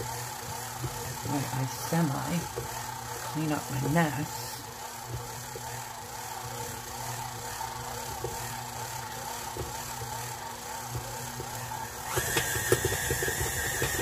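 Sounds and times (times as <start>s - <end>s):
high mixer whine: 0.0s - 14.0s
stand mixer motor humming: 0.0s - 14.0s
dough hook knocking: 10.8s - 14.0s.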